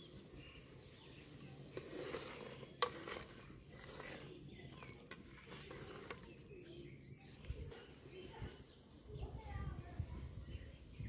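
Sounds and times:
faint birds calling: 0:00.0 - 0:11.0.

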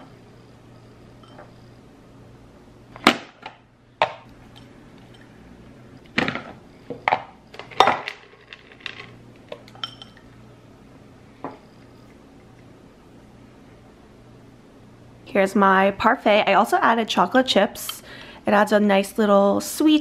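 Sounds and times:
clinks against glass bowl: 0:09.7 - 0:10.3.

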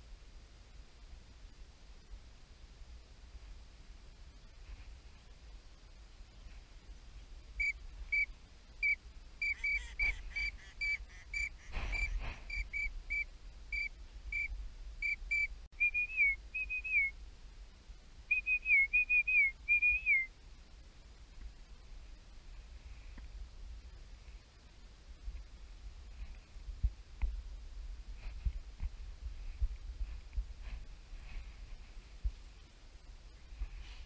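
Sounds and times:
duck whistling: 0:07.6 - 0:17.1, 0:18.3 - 0:20.3
rustle or thump: 0:11.7 - 0:12.5.

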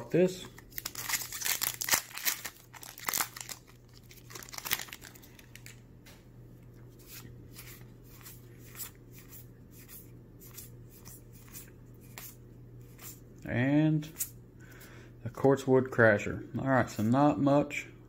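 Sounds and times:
foil wrapper crinkling and tearing: 0:00.6 - 0:05.8.

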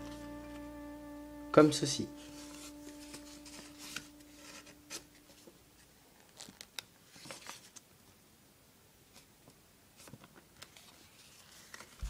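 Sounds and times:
paper crackling and rustling: 0:06.3 - 0:07.9, 0:10.0 - 0:12.0.

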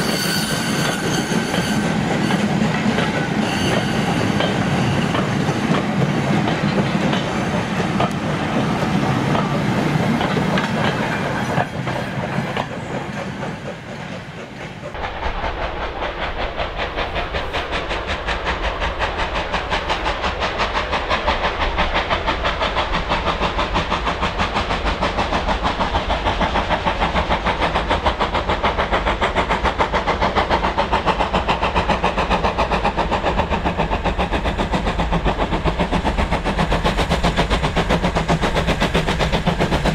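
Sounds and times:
steam engine exhaust beats: 0:00.0 - 0:39.9
wheels clicking over rail joints: 0:00.9 - 0:15.0.

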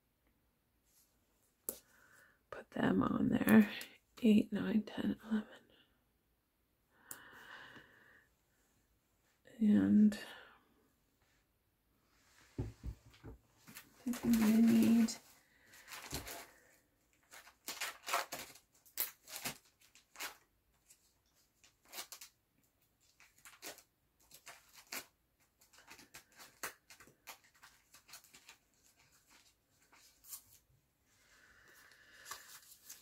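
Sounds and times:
papers rustling and clicking: 0:13.1 - 0:22.4, 0:23.0 - 0:30.6.

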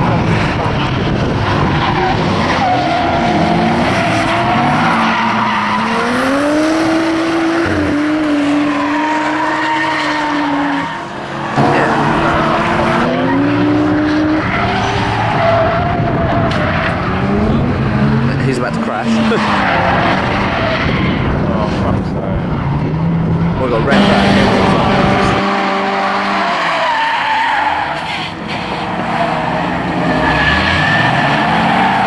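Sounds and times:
car engine revving: 0:00.0 - 0:32.0.

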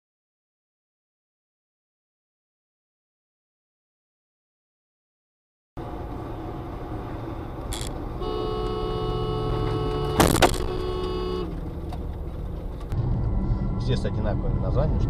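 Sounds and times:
car engine and road noise: 0:05.8 - 0:15.0
two-tone car horn: 0:07.7 - 0:11.7.

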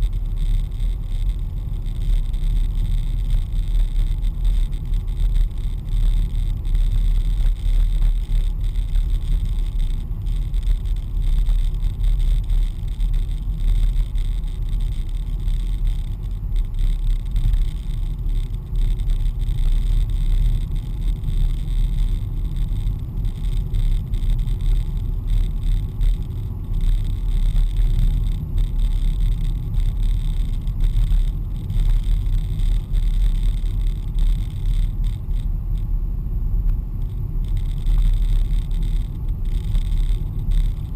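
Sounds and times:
car engine and tyre road noise: 0:00.0 - 0:40.9.

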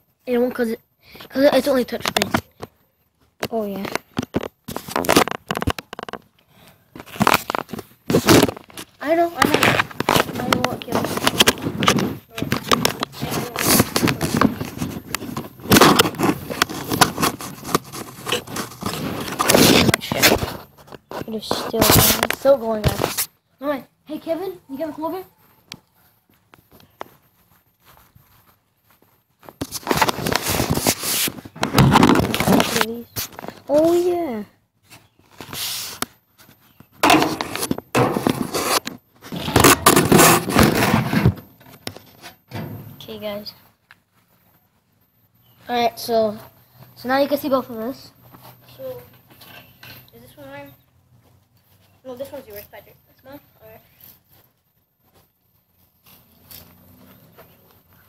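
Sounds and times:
scraping and rustling handling noise: 0:01.5 - 0:23.4, 0:24.8 - 0:58.0
fingers rubbing phone microphone: 0:09.4 - 0:22.2.

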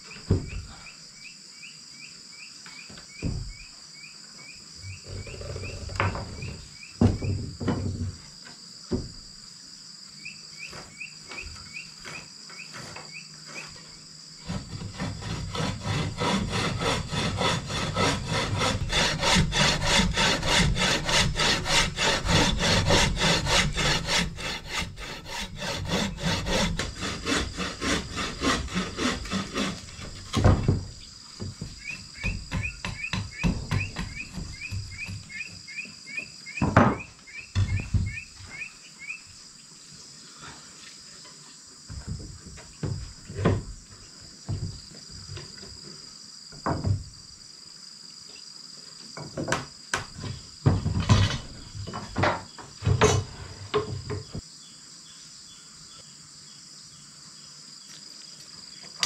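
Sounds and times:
wood knocking: 0:00.2 - 0:00.7, 0:03.2 - 0:03.6, 0:05.6 - 0:08.2, 0:08.9 - 0:09.2, 0:14.7 - 0:38.3
hand saw cutting wood: 0:14.4 - 0:30.8.

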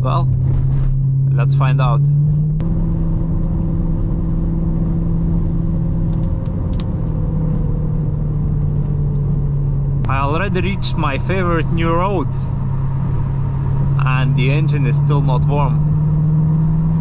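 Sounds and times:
car engine running at low revs: 0:00.0 - 0:17.0.

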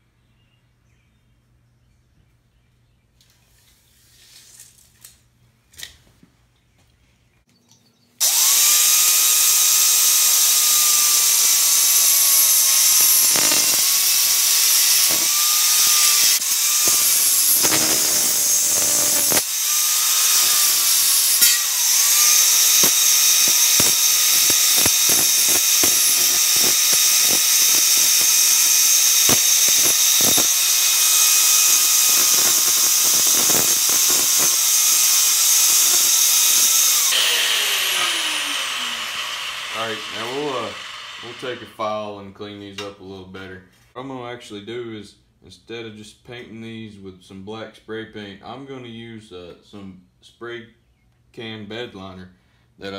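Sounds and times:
grinder winding down: 0:08.2 - 0:41.8
angle grinder cutting steel: 0:08.2 - 0:41.9.

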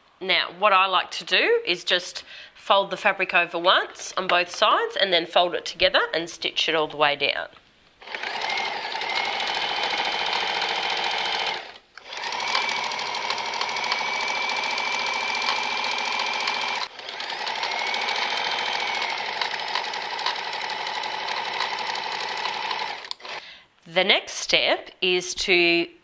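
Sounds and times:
sewing machine stitching: 0:08.0 - 0:23.4.

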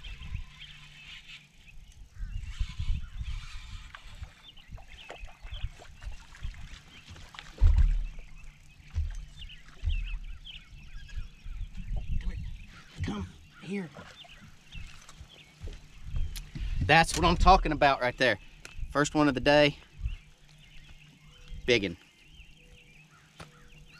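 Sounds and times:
birds chirping and honking: 0:00.0 - 0:23.9
thumps on boat deck: 0:07.6 - 0:08.2.

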